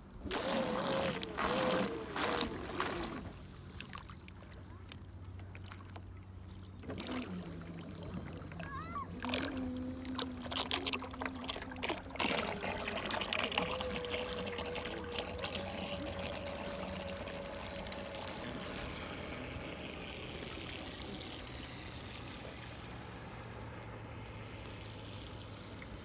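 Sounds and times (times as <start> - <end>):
water lapping and splashing: 0.0 - 26.0
electric motor whining: 0.2 - 3.3, 6.8 - 23.0.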